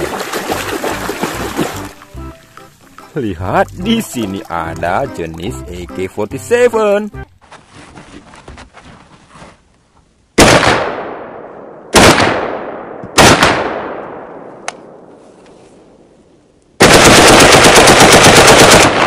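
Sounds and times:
rifle single shots echoing: 10.4 - 15.1.

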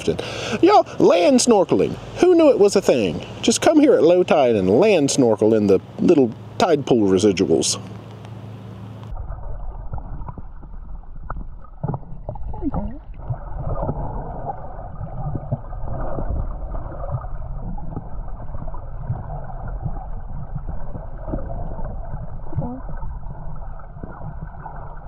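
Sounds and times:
underwater gurgling: 9.1 - 25.0.

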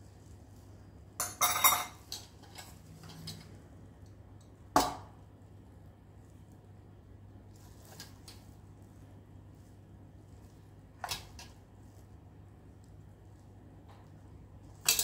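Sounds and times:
metal cups clattering: 1.2 - 3.4.

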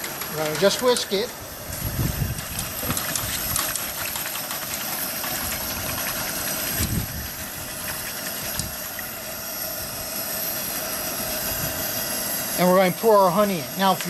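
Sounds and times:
camp stove burner hiss: 0.0 - 14.0
whisk scraping metal pot: 2.4 - 10.0.

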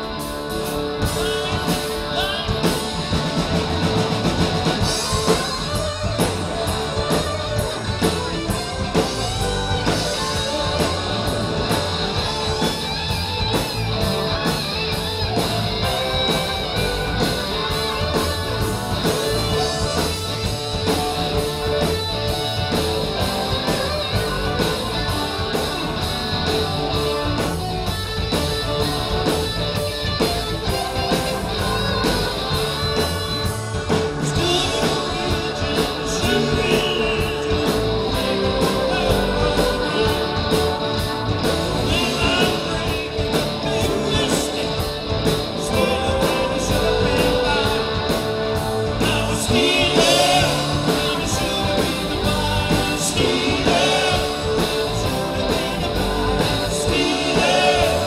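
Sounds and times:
drums keeping a steady beat: 0.0 - 58.0
electric guitar: 0.0 - 58.0
person singing: 34.2 - 41.1, 41.8 - 48.3, 48.9 - 58.0.

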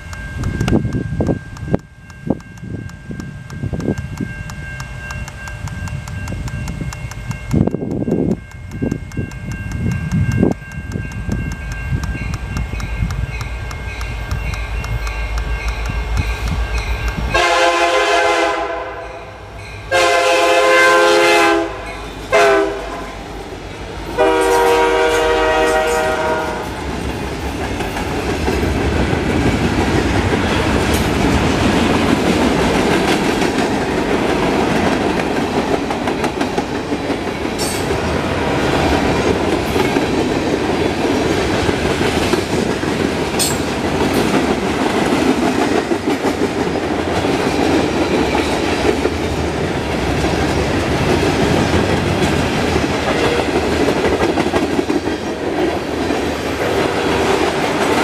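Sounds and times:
diesel locomotives rumbling: 0.0 - 58.0
train air horn blasts: 17.3 - 23.4, 24.1 - 26.8.

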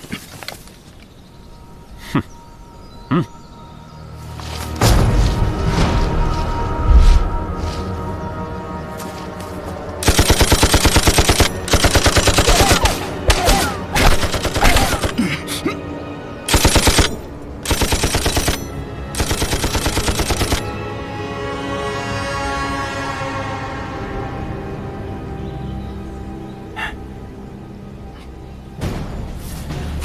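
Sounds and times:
background music: 0.0 - 30.0
machine-gun fire: 10.0 - 15.1.

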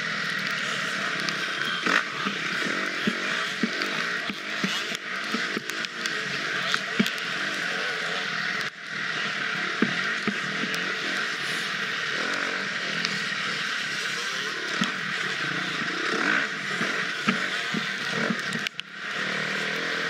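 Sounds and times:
dirt bike engine revving: 10.3 - 18.3, 19.0 - 20.0.

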